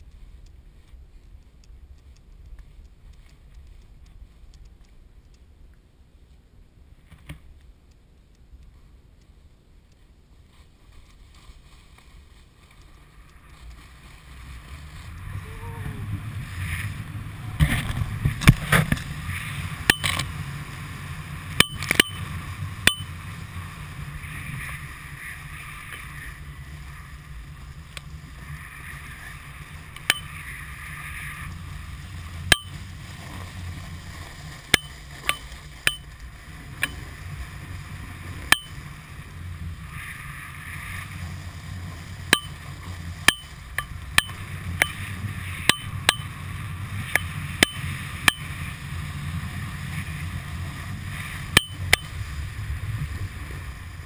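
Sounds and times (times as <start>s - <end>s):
snow sliding underfoot: 10.0s - 21.6s, 22.2s - 54.0s
wind rushing over microphone: 13.4s - 54.0s.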